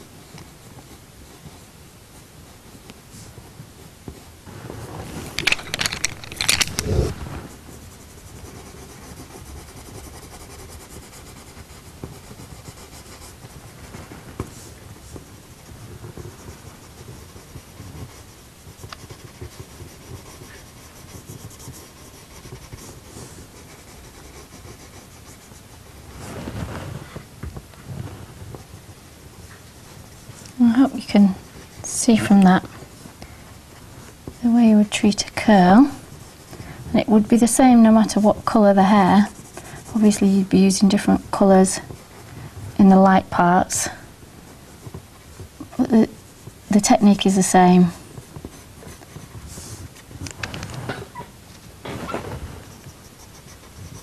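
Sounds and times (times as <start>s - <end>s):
pencil scratching on paper: 2.7s - 26.1s, 28.3s - 32.9s, 34.3s - 50.3s, 52.5s - 54.0s
pencils being handled: 5.0s - 7.2s.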